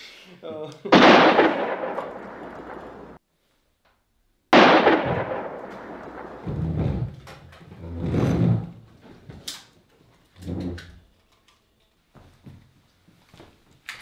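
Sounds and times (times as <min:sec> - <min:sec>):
loud bang: 0:00.9 - 0:03.2, 0:04.6 - 0:07.2.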